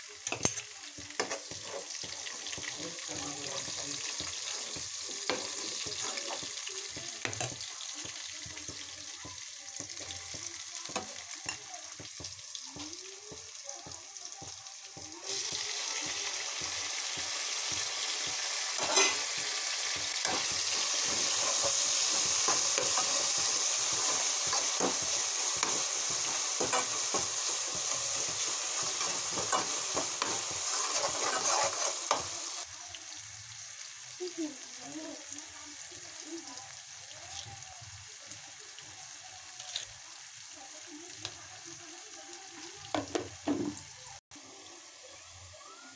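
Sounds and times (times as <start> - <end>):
vegetables sizzling in oil: 0.0 - 45.9
spoon scraping metal pan: 0.3 - 6.6, 18.8 - 19.4, 20.2 - 32.5.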